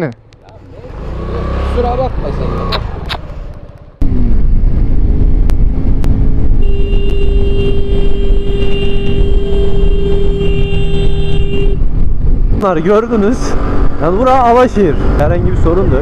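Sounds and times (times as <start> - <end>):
wind rush on microphone: 4.0 - 16.0.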